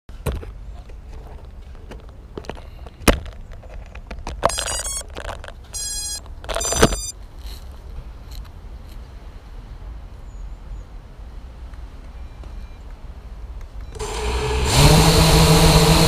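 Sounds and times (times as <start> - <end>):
high-pitched electronic tones: 4.5 - 5.1, 5.7 - 7.1.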